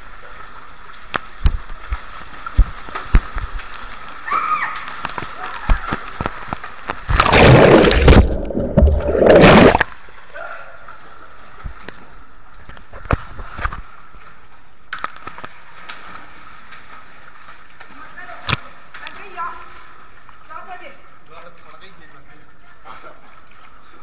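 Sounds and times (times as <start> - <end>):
water splashing and gushing: 0.0 - 10.3
water drips and knocks: 1.0 - 4.0, 4.7 - 9.9.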